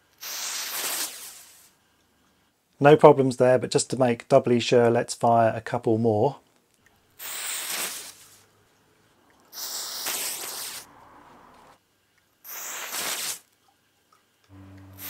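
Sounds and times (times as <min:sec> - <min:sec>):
igniters hissing fizz: 0:00.1 - 0:01.8, 0:07.2 - 0:08.4, 0:09.4 - 0:10.9, 0:12.4 - 0:13.5, 0:14.5 - 0:15.0.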